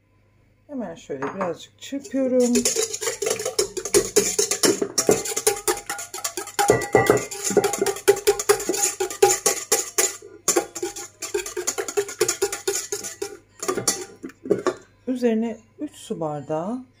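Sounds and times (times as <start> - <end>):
whisk clattering in metal bowl: 2.0 - 14.8.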